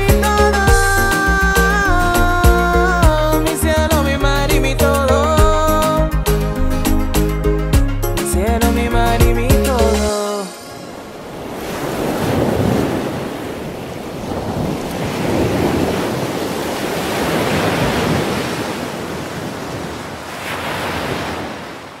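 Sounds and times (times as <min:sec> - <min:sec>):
surf breaking against rocks: 0:10.4 - 0:22.0.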